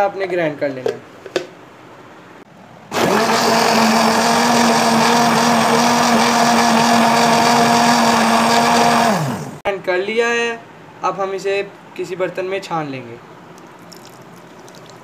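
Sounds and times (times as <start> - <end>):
electric blender running: 2.9 - 9.6.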